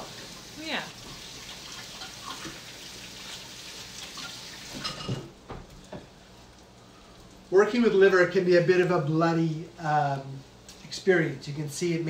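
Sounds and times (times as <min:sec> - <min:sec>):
tap water running: 0:00.0 - 0:05.6.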